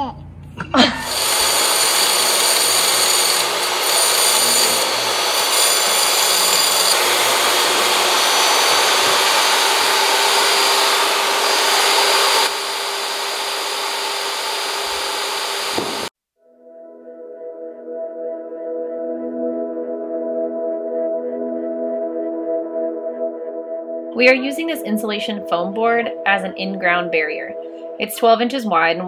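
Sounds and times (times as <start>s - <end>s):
saw cutting foam hiss: 1.0s - 16.1s
table saw motor whine: 1.0s - 16.1s.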